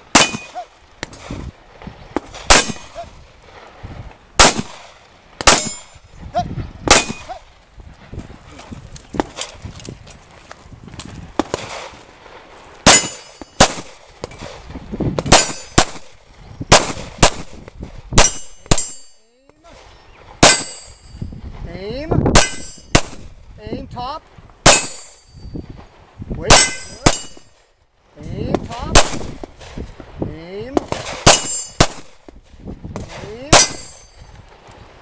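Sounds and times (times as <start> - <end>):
steel targets clanging: 0.1 - 0.6, 2.5 - 3.0, 5.4 - 6.0, 6.9 - 7.3, 12.8 - 14.4, 15.3 - 16.0, 18.2 - 19.3, 20.4 - 21.2, 22.3 - 23.1, 24.6 - 25.6, 26.4 - 27.6, 30.9 - 32.0, 33.0 - 34.3
pistol shots: 0.1 - 1.2, 2.2 - 3.0, 4.4 - 5.9, 6.9 - 7.4, 12.8 - 14.5, 15.2 - 17.6, 18.2 - 19.1, 20.4 - 21.0, 22.3 - 23.2, 24.6 - 25.2, 26.5 - 27.4, 28.9 - 29.5, 30.8 - 32.2.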